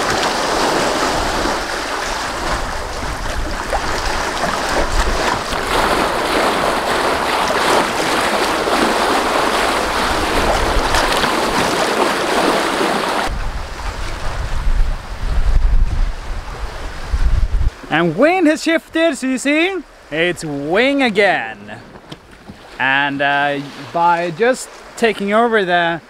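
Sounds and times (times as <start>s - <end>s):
wind rumble on microphone: 0.0s - 11.8s, 13.3s - 17.9s
water rushing along a hull: 0.0s - 26.0s.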